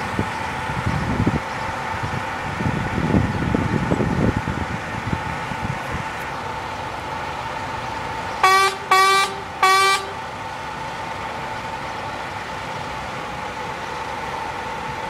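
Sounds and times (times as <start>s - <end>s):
pump truck engine hum: 0.0s - 15.0s
vehicle horn toots: 8.4s - 10.2s.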